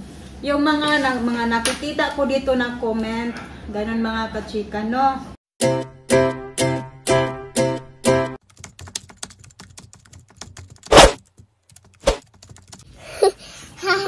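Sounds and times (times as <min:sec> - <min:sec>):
rapid keyboard typing clicks: 0:08.4 - 0:12.9.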